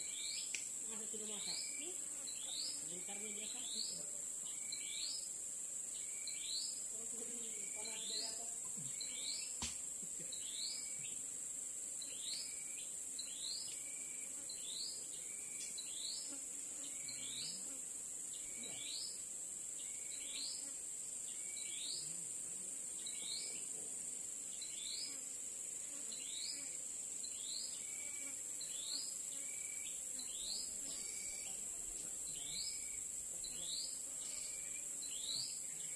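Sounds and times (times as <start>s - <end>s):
high-pitched insect drone: 27.2s - 35.9s.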